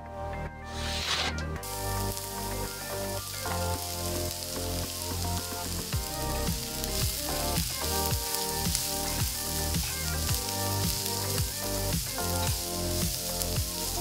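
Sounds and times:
background music: 0:00.0 - 0:14.0
vegetables sizzling in hot oil: 0:00.9 - 0:14.0.

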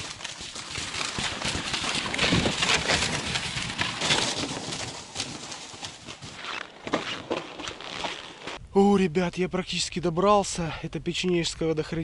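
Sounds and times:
footsteps crunching through snow: 0:00.0 - 0:08.6.

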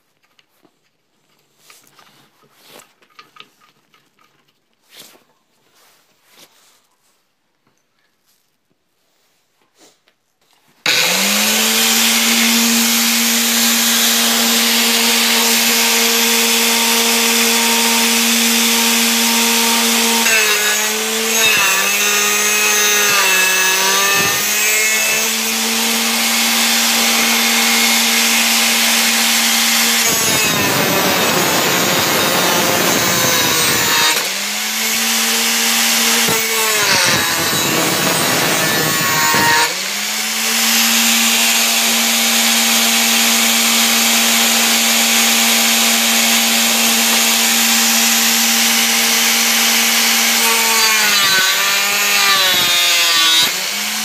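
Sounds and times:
angle grinder whining: 0:10.8 - 0:54.0
grinding metal rasp: 0:10.9 - 0:39.8.

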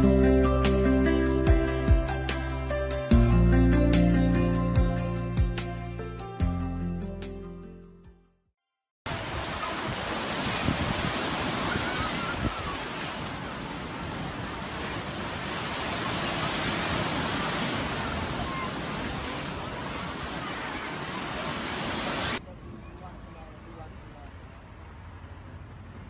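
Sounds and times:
surf washing up beach: 0:09.1 - 0:22.4
waterfall cascading: 0:09.1 - 0:22.4.

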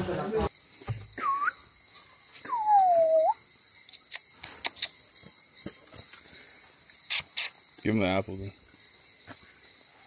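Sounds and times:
jungle insects droning: 0:00.0 - 0:10.0
whistle-like animal call: 0:01.2 - 0:01.6, 0:02.5 - 0:03.4.

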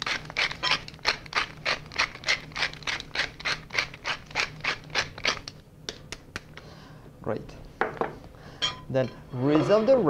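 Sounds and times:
pepper mill grinding: 0:00.0 - 0:05.6.

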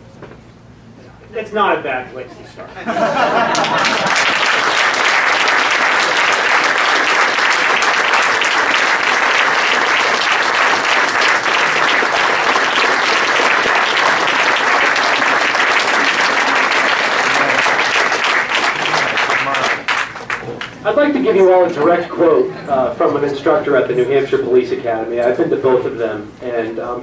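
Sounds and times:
audience applauding: 0:03.1 - 0:20.8.

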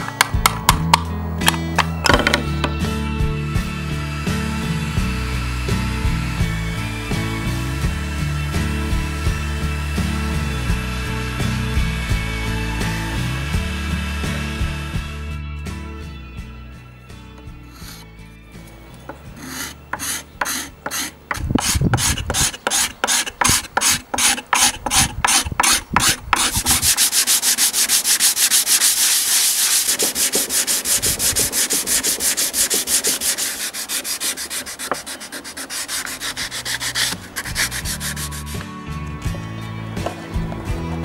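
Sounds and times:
sandpaper sanding wood: 0:17.7 - 0:18.0, 0:19.3 - 0:38.6.

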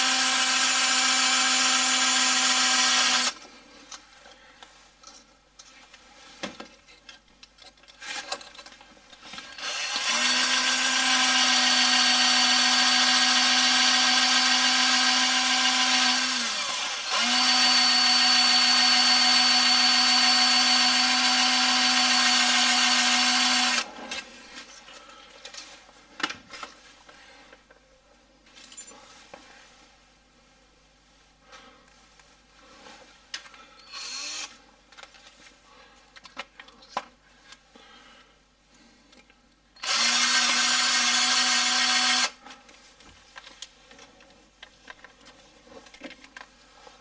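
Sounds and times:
power drill whining: 0:00.0 - 0:03.4, 0:09.5 - 0:23.9, 0:33.8 - 0:34.6, 0:39.8 - 0:42.4.

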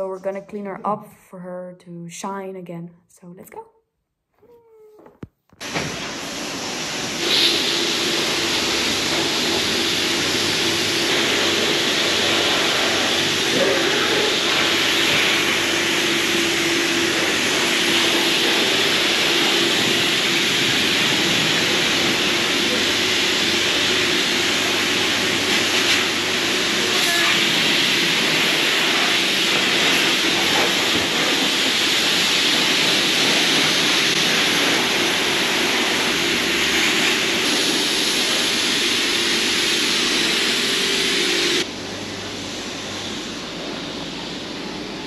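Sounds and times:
pressure washer spraying: 0:05.6 - 0:41.7.

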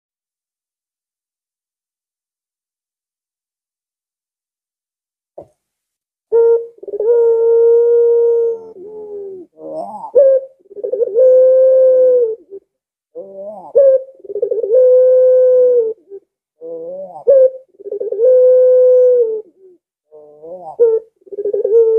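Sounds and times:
dove cooing: 0:06.3 - 0:21.9.

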